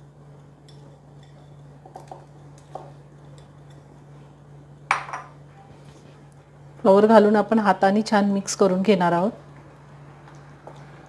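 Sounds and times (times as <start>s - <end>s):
glass bowls knocking: 4.9s - 5.3s
glass bowl clink: 4.9s - 5.4s.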